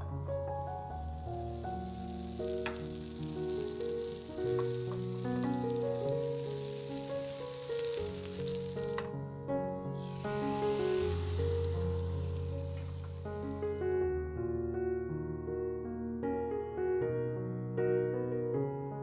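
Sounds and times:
butter sizzling in frying pan: 0.0 - 9.2, 9.9 - 14.0
piano music: 0.0 - 19.0.

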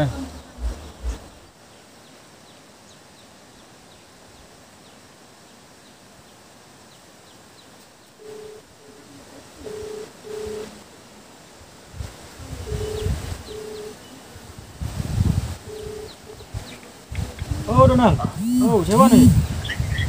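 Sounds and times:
faint outdoor hiss: 0.0 - 20.0
phone ringback tone beeps: 8.2 - 8.6, 9.6 - 10.7, 12.7 - 14.0, 15.7 - 16.1, 18.4 - 19.4
faint high chirps: 18.4 - 20.0.

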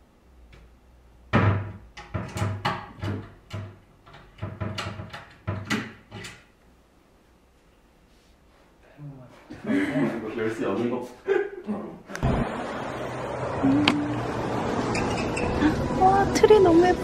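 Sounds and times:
wooden cabinet doors knocking: 1.3 - 6.3.

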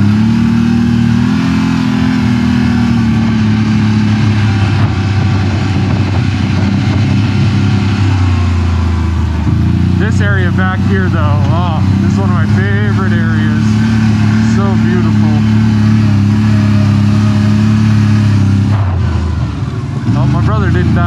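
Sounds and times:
atv engine running: 0.0 - 21.0.

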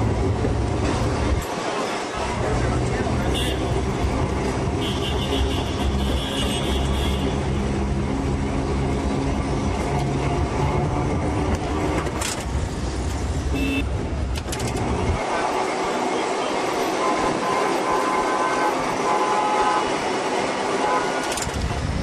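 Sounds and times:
tram and street traffic: 0.0 - 22.0
vehicle horn tooting: 3.3 - 3.8, 4.8 - 7.4, 13.5 - 13.9, 17.0 - 20.0, 20.8 - 21.4.

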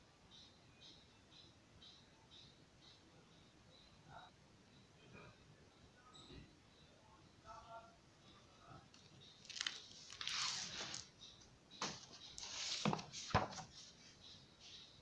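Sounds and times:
book pages rustling: 9.4 - 11.1, 11.8 - 13.9.

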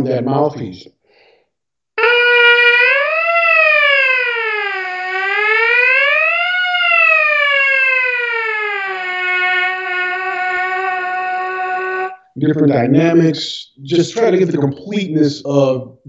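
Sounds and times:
trumpet mouthpiece buzzing: 9.2 - 12.3.

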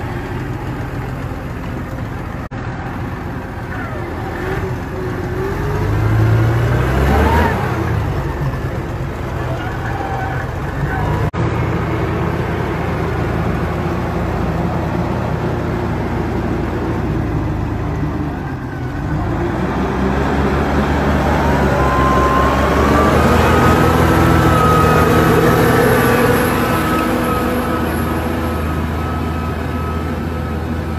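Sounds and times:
tractor diesel engine under load: 0.0 - 30.9
rising whine: 10.8 - 30.9.

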